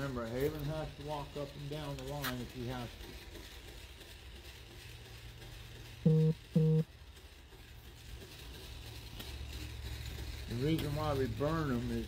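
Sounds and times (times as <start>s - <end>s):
short loud beeps: 6.1s - 6.8s.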